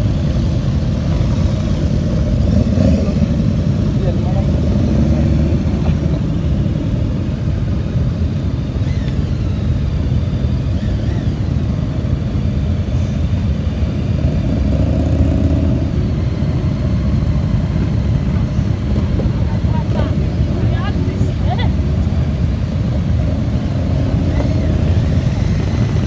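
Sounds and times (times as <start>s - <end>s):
motorcycles riding past: 0.0s - 7.0s, 13.3s - 26.0s.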